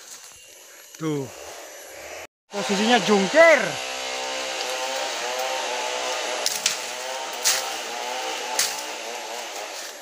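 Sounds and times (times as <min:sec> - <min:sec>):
chainsaw idling unevenly: 0:02.1 - 0:10.0.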